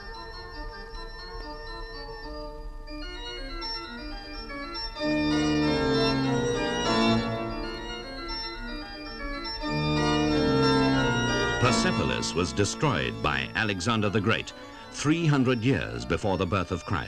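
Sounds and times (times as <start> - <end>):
slow sustained orchestral chords: 9.5 - 16.2.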